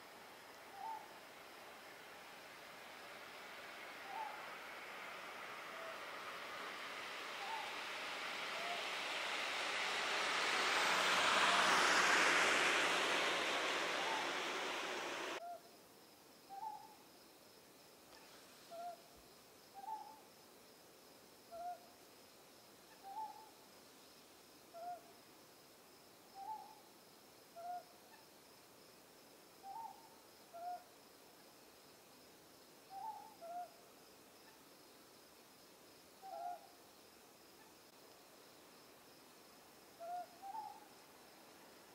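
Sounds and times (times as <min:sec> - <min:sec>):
owl hooting: 0:00.7 - 0:01.2, 0:04.0 - 0:04.5, 0:05.7 - 0:06.1, 0:07.4 - 0:07.8, 0:36.2 - 0:36.7, 0:40.0 - 0:40.9
loud rushing noise: 0:02.0 - 0:15.4.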